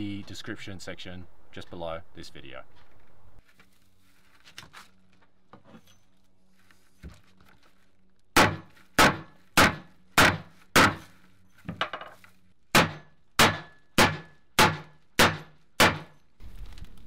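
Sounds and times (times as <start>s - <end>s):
hatchet chopping net and rope: 8.3s - 17.0s.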